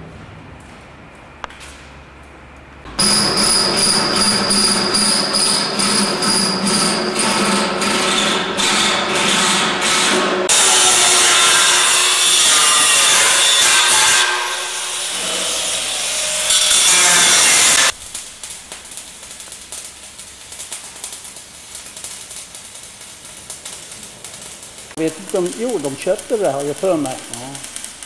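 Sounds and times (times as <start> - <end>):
arc welding crackle: 2.9 - 8.9, 10.5 - 28.0
angle grinder grinding metal: 10.5 - 18.0, 25.0 - 28.0.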